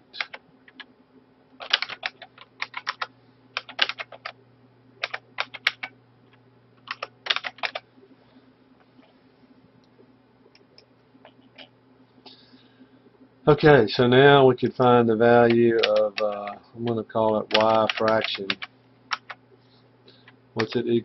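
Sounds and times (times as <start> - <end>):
typing on computer keyboard: 1.6 - 4.4, 5.0 - 5.9, 6.8 - 7.8, 15.4 - 19.4, 20.2 - 20.8.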